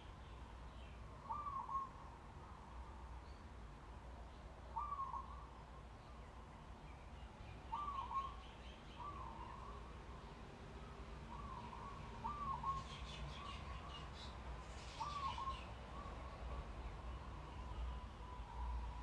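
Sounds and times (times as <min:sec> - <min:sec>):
bird calling: 0:01.2 - 0:02.0, 0:04.8 - 0:05.5, 0:07.7 - 0:09.8, 0:11.3 - 0:16.3.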